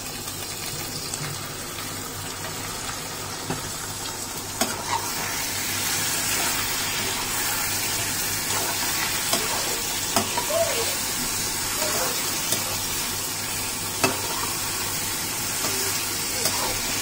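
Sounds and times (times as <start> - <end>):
chicken sizzling in a pan: 0.0 - 17.0
metal spatula clicking on pan: 9.3 - 10.5.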